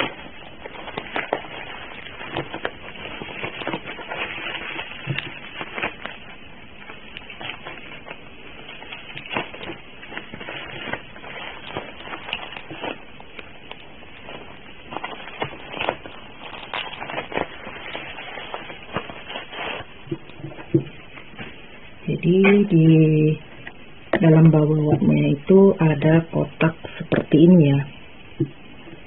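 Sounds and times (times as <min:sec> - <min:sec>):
sharp plastic crackles: 0:00.0 - 0:22.8
bubble wrap crinkling: 0:00.0 - 0:29.0.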